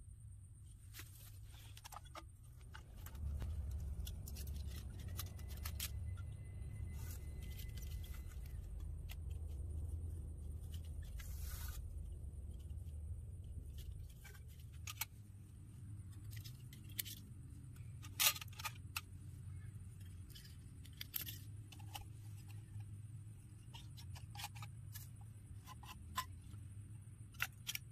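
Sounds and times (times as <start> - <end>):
low steady rumble: 0.0 - 27.9
metal scrape: 2.8 - 8.9, 10.6 - 12.0.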